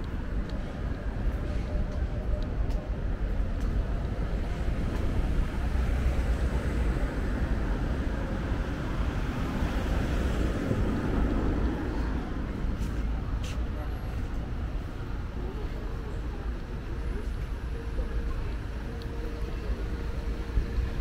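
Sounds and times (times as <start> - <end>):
steady outdoor rumble: 0.0 - 21.0.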